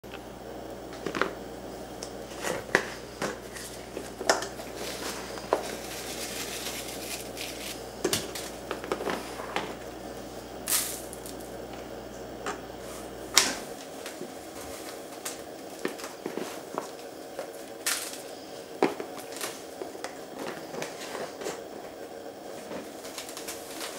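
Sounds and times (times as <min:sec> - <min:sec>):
low steady hum: 0:00.0 - 0:23.9
cardboard box rustling and scraping: 0:04.6 - 0:09.6.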